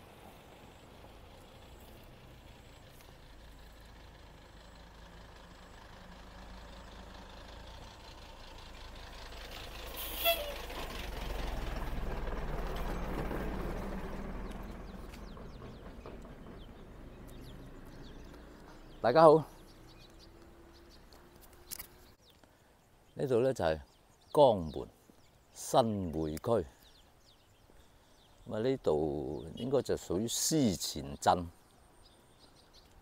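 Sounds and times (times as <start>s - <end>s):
vehicle passing by: 0.0s - 22.2s
high-pitched squeak: 10.0s - 10.8s.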